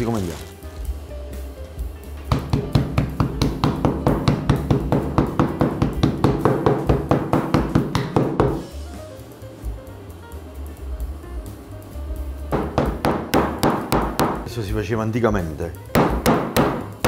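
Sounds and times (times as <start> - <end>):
faint background music: 0.0 - 17.0
pounder knocking on wooden board: 2.3 - 8.6, 12.5 - 14.5, 15.9 - 16.9.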